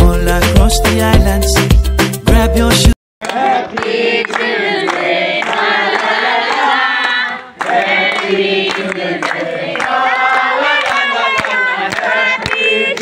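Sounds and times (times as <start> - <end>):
group of people singing: 3.2 - 13.0
hand clapping: 3.2 - 13.0.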